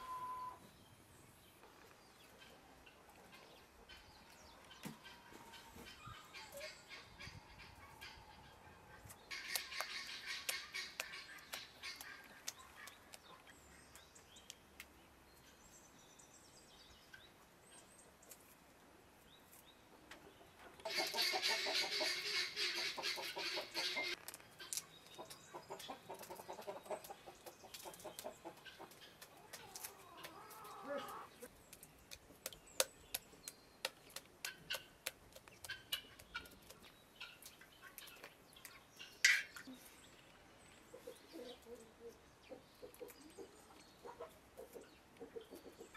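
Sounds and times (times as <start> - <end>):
chickens clucking: 2.2 - 13.5, 19.9 - 31.5, 34.1 - 39.9, 40.8 - 45.9
wet splashing and squelching: 9.3 - 13.3.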